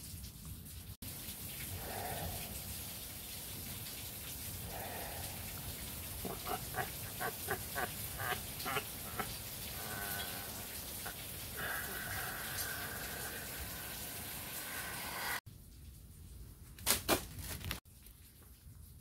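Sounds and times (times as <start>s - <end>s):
high cackling laugh: 6.2s - 13.4s.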